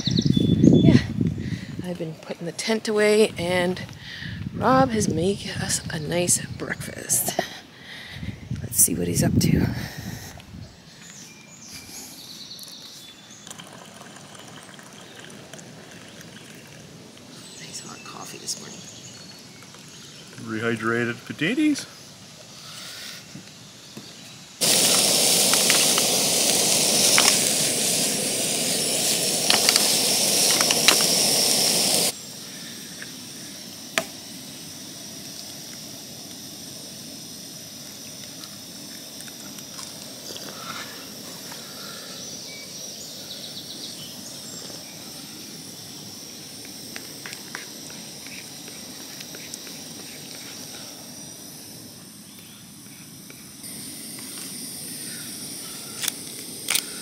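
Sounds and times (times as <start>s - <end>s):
camp stove burner hissing: 0.0s - 57.0s
loud rushing hiss: 19.9s - 57.0s.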